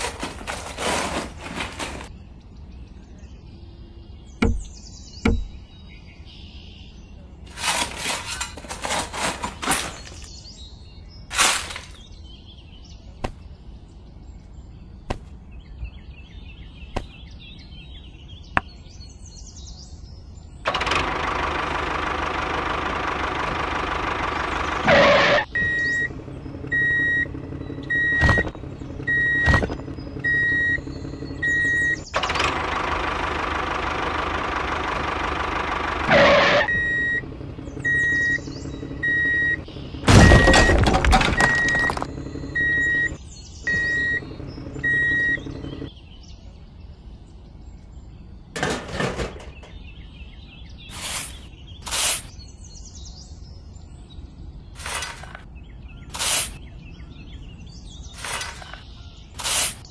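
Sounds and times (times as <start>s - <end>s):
heavy vehicle engine running: 0.0s - 2.2s, 7.5s - 10.3s, 20.7s - 45.9s, 54.8s - 55.4s, 58.2s - 59.8s
reversing alarm beeping: 24.8s - 32.1s, 36.1s - 45.9s.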